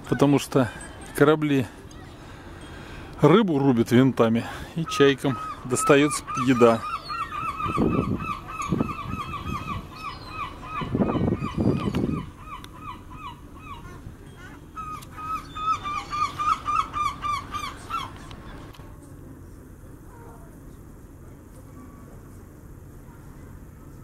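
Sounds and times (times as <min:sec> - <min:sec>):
gulls calling: 0:04.4 - 0:18.7
wind buffeting microphone: 0:07.3 - 0:12.4.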